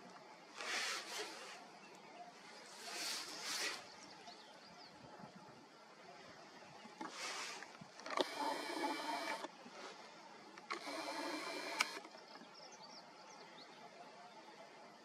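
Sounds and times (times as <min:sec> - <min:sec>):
camera zoom motor whirring: 0:08.0 - 0:09.5, 0:10.7 - 0:12.1
click: 0:11.7 - 0:12.1.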